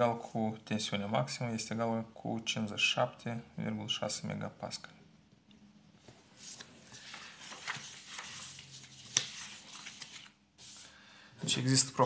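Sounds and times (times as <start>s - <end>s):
paper rustling: 6.1s - 11.7s.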